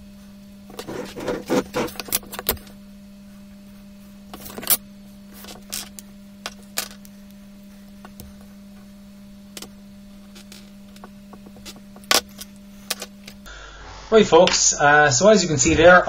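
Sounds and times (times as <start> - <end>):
steady low hum: 0.0 - 16.0
marker scratching on paper: 0.7 - 2.5.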